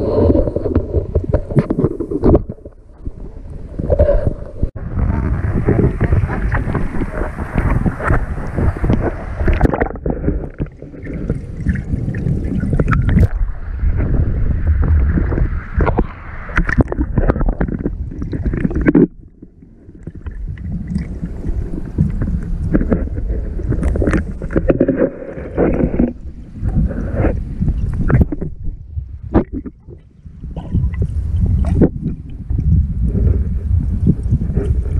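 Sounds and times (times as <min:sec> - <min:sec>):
fish bumping against camera: 0:00.0 - 0:02.8, 0:05.1 - 0:13.4, 0:22.0 - 0:28.6
muffled underwater sloshing: 0:00.0 - 0:34.9.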